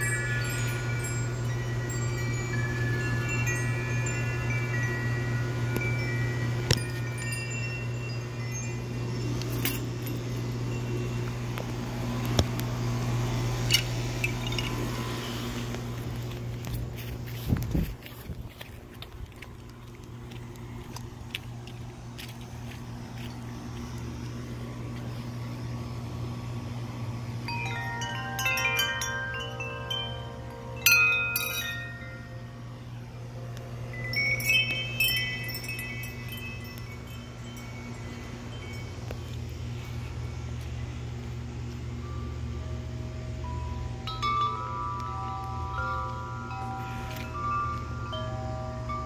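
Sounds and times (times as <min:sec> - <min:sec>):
metal tube wind chime ringing: 0:00.0 - 0:17.6, 0:27.3 - 0:49.0
steady low hum: 0:00.0 - 0:49.0.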